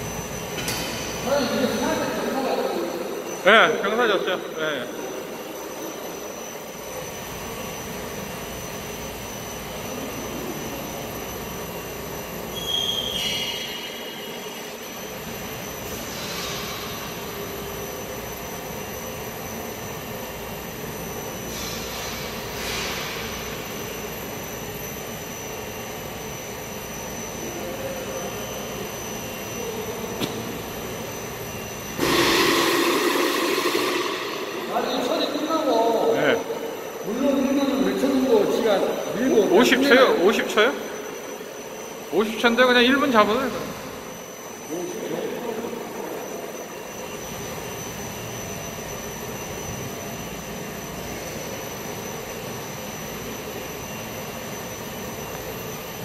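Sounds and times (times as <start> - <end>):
faint high whine: 0.0 - 56.0
machinery humming and hissing: 0.0 - 56.0
loud burst of sound: 31.9 - 35.8.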